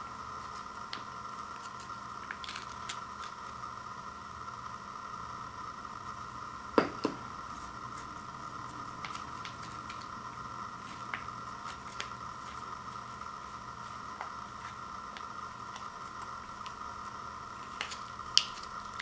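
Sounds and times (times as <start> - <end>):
faint steady hum: 0.0 - 19.0
ceramic bowl knocking on wood floor: 6.8 - 7.2.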